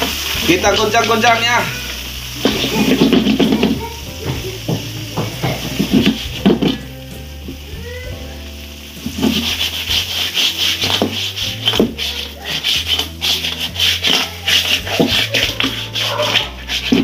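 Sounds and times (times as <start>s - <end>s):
lobsters sizzling in butter: 0.0s - 17.0s.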